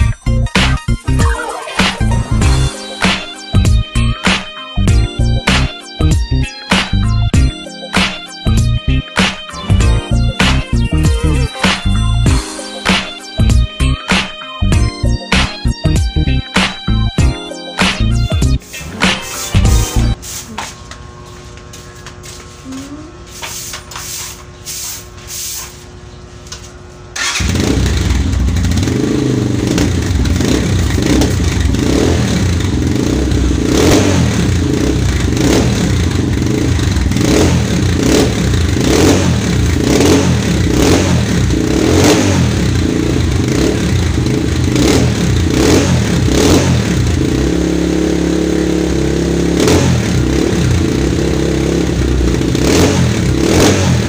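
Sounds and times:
motorcycle throttle blips: 0:26.1 - 0:54.0
motorcycle engine starting: 0:27.1 - 0:54.0.

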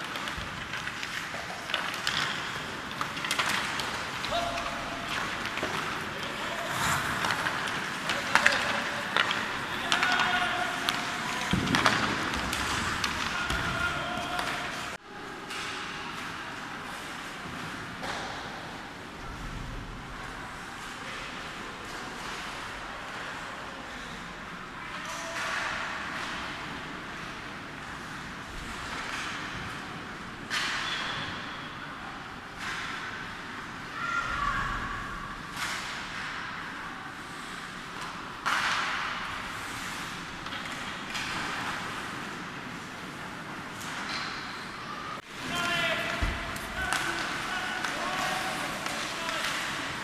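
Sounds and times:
skates scraping on ice: 0:00.0 - 0:14.9
hockey sticks clacking: 0:00.0 - 0:18.7, 0:24.9 - 0:31.5, 0:32.6 - 0:33.6, 0:35.5 - 0:44.6, 0:45.2 - 0:50.0.

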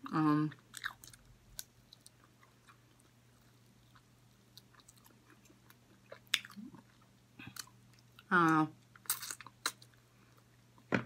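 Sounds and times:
chewing with wet mouth clicks: 0:00.5 - 0:08.2.

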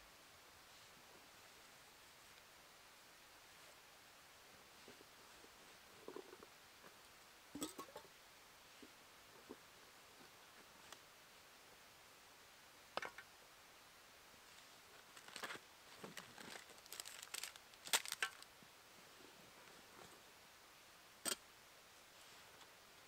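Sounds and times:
packets rustling and crinkling: 0:15.0 - 0:18.5.

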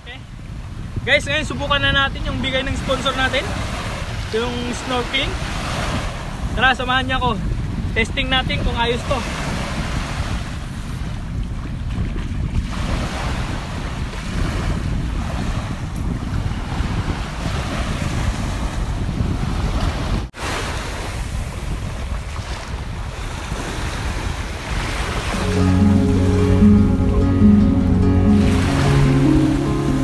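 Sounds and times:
wind buffeting microphone: 0:00.2 - 0:25.9
small waves washing: 0:19.7 - 0:30.0.

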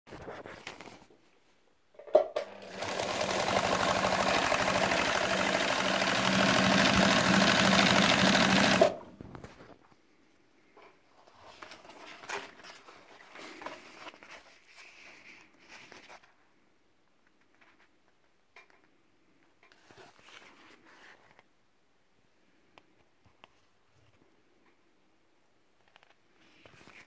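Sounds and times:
sewing machine start click: 0:02.4 - 0:09.0
sewing machine running: 0:02.4 - 0:09.1.

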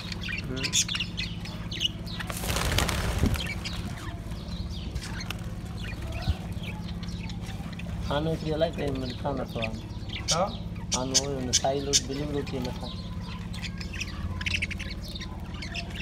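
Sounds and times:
budgerigars chirping: 0:00.0 - 0:16.0
wing flapping: 0:02.2 - 0:04.3.

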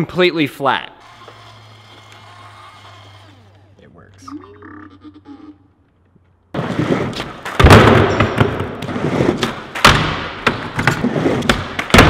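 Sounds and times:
skateboard wheels rolling on wood: 0:06.5 - 0:12.0
skateboard thuds and clacks: 0:06.6 - 0:12.0.

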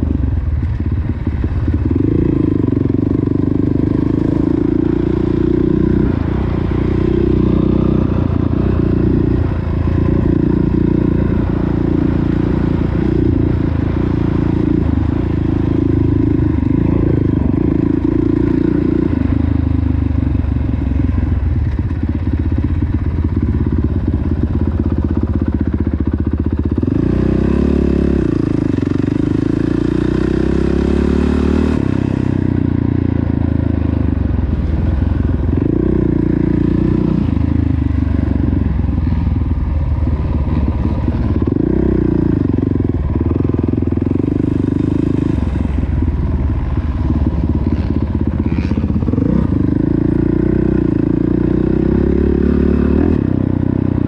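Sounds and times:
dirt bike engine revving: 0:47.0 - 0:53.3.

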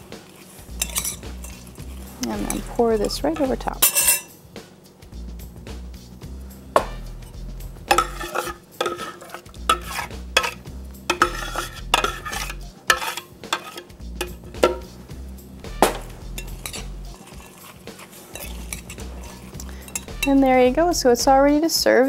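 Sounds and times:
metal spoon clinking on glass bowl: 0:00.7 - 0:04.4, 0:07.9 - 0:14.9, 0:16.4 - 0:20.5.

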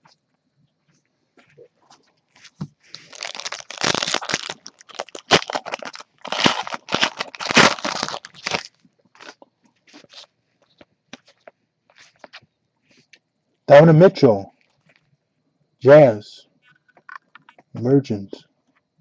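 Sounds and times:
card pack wrapper tearing: 0:02.4 - 0:10.3.

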